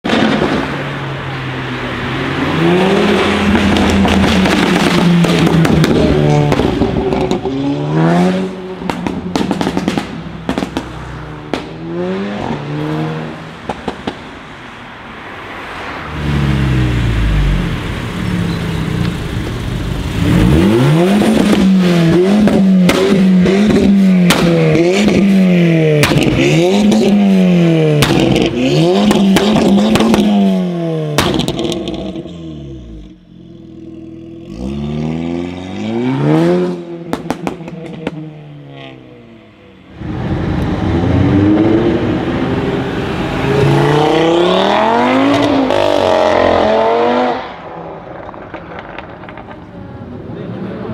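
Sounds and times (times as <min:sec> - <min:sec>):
car engine revving: 0:00.1 - 0:14.2, 0:15.7 - 0:49.7
exhaust pops and crackles: 0:03.5 - 0:07.5, 0:08.9 - 0:11.8, 0:22.4 - 0:25.3, 0:26.0 - 0:27.2, 0:27.9 - 0:30.4, 0:31.1 - 0:32.3, 0:37.1 - 0:38.2, 0:48.0 - 0:49.9.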